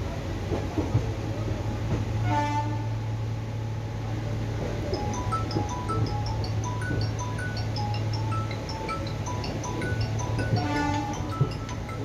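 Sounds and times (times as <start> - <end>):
train low hum: 0.0 - 12.0
train horn toot: 2.2 - 3.0, 10.6 - 11.1
wheels clicking over rail joints: 4.9 - 12.0.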